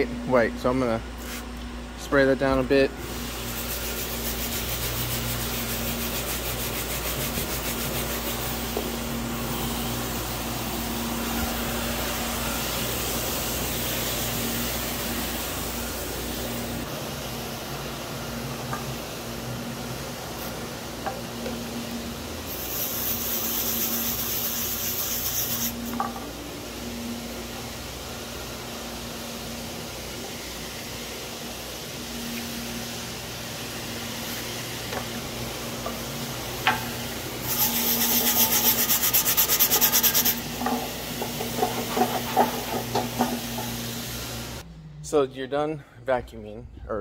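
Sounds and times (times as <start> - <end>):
low machine hum: 0.0 - 47.0
brush scrubbing rubber flooring: 3.5 - 8.9.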